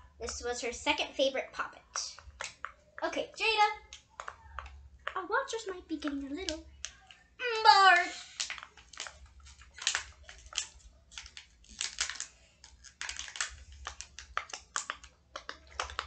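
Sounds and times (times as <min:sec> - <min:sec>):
fidget toy bubbles popping: 0:01.9 - 0:03.1, 0:03.8 - 0:07.2, 0:08.3 - 0:16.0.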